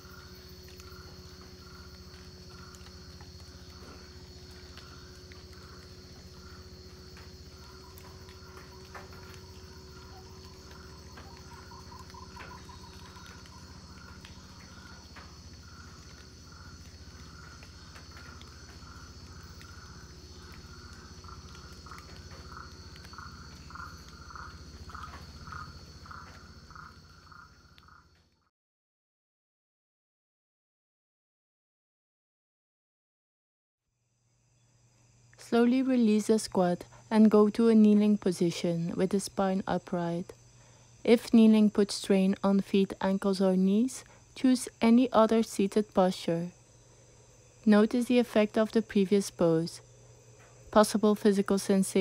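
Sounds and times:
low hum: 0.0s - 28.0s
high-pitched insect chorus: 0.0s - 28.2s, 34.1s - 52.0s
pulsing animal call: 2.5s - 28.0s.

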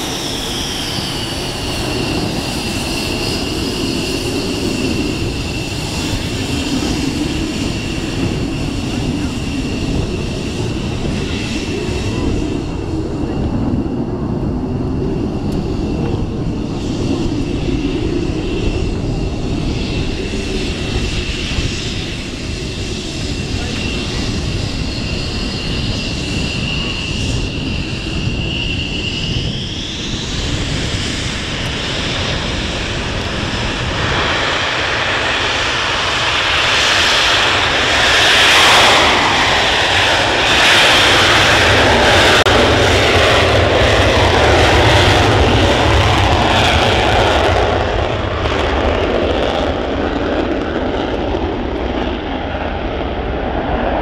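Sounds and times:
jet engine crackling roar: 0.0s - 54.0s
jet engine whine: 0.0s - 54.0s.

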